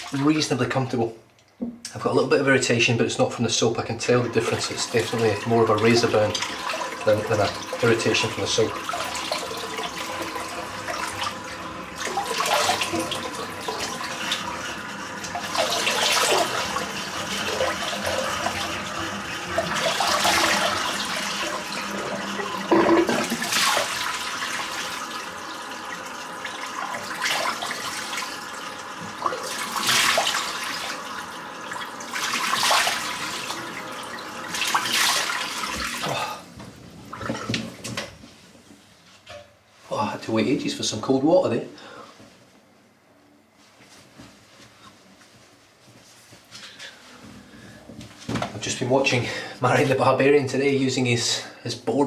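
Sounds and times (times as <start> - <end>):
tap running into sink: 22.6 - 23.6, 37.2 - 38.2.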